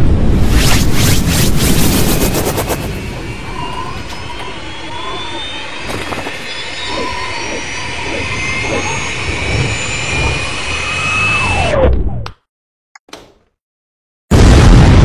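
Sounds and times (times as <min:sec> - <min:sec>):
jet-like rushing noise: 0:00.0 - 0:05.8
short swooping tones: 0:00.4 - 0:05.9.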